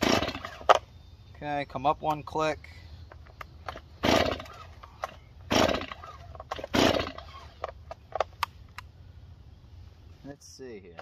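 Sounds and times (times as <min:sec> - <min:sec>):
chainsaw pull-start attempts: 0:00.0 - 0:00.8, 0:03.6 - 0:08.3.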